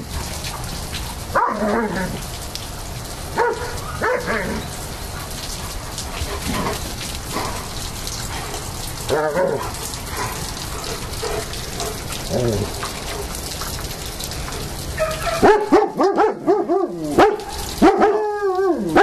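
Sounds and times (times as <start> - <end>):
falling rain hiss: 0.0 - 19.0
dogs barking: 1.2 - 2.2, 3.2 - 8.0, 8.6 - 13.6, 14.9 - 19.0.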